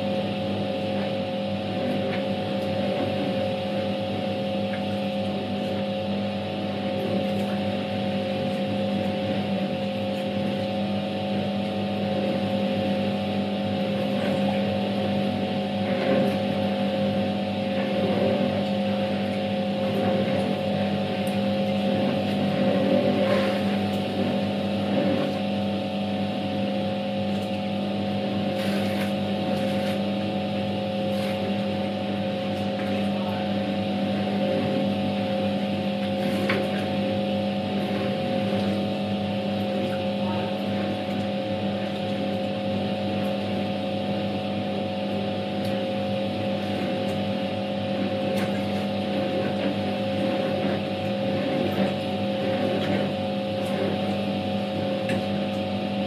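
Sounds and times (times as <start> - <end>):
washing machine motor humming: 0.0 - 56.0
water churning in tub: 0.0 - 56.0.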